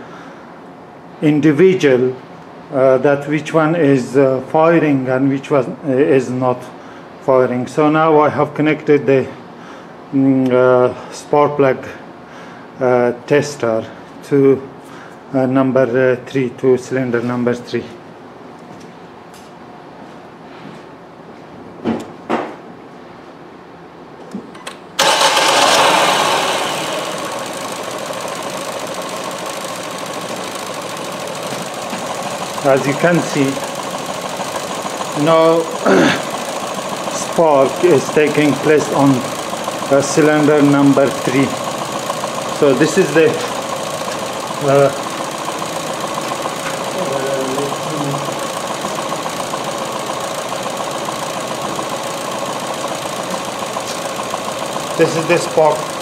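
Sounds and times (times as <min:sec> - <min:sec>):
car engine misfiring at idle: 0:25.0 - 0:56.0.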